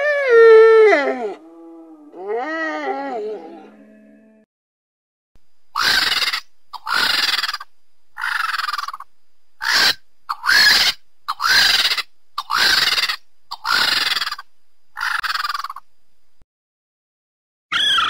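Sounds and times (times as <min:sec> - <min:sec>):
bird-like creature calls: 0:05.8 - 0:14.4, 0:15.0 - 0:15.8, 0:17.7 - 0:18.0.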